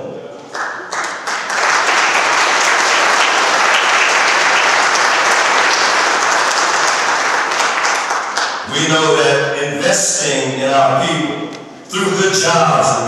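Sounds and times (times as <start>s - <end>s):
audience applauding: 0.4s - 8.8s.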